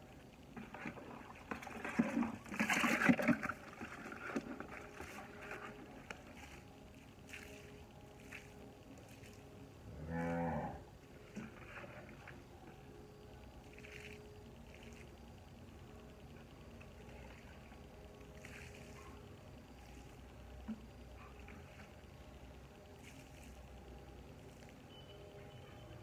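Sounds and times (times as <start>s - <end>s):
cow mooing: 9.9s - 10.8s.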